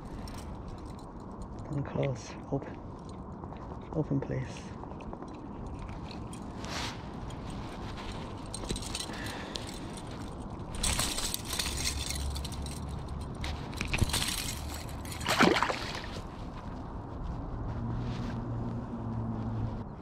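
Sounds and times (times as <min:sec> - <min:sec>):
metal chain clinking: 0:00.0 - 0:02.0, 0:05.1 - 0:16.5
splash into water: 0:15.2 - 0:16.1.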